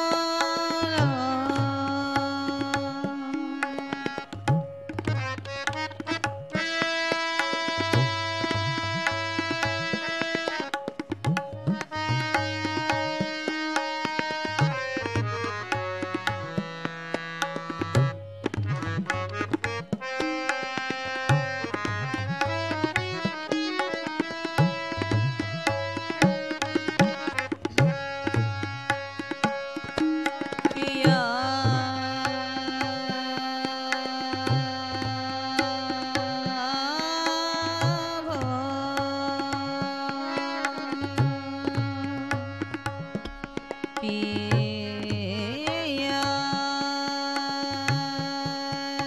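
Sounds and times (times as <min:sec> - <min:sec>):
tabla playing: 0:00.0 - 0:49.0.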